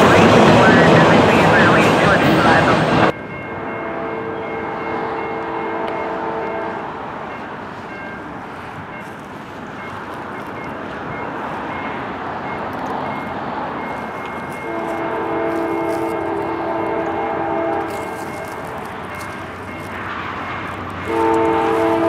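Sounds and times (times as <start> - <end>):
locomotive horn: 0.0 - 7.1, 14.5 - 22.0
train rumble: 0.0 - 22.0.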